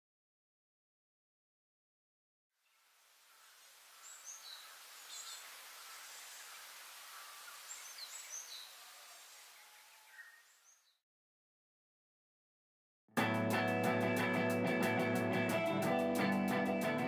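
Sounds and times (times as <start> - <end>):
steady hiss: 2.7 - 10.7
high bird chirps: 7.1 - 11.0.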